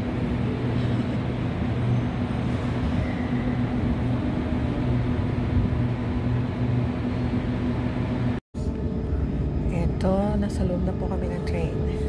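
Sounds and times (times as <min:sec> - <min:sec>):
electric train humming: 0:00.0 - 0:12.0.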